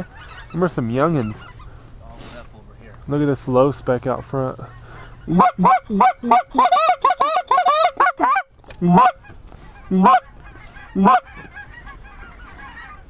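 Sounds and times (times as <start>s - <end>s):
flock of geese calling: 0.0s - 2.4s, 4.6s - 13.0s
goose yelping calls: 4.7s - 13.0s.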